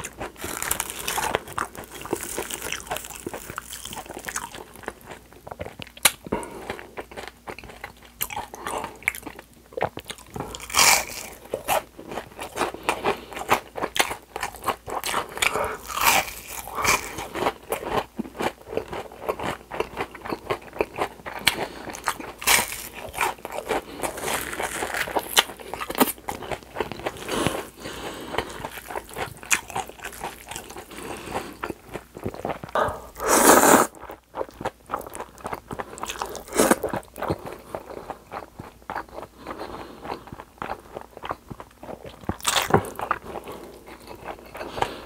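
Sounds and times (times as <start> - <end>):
crunching and chewing fried food: 0.0 - 45.0
noodles being slurped: 32.8 - 33.9.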